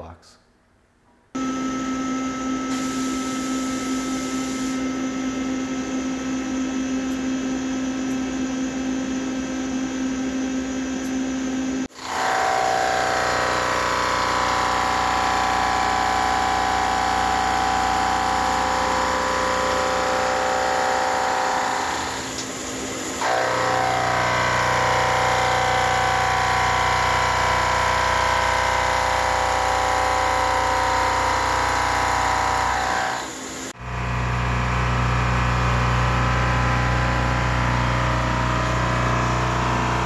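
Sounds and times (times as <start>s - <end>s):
milling machine whine: 1.4s - 40.0s
hiss of cutting and coolant spray: 2.7s - 4.8s.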